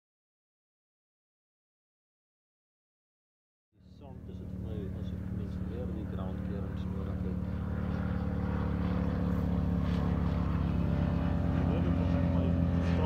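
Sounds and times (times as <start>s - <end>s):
engine running: 3.8s - 13.0s.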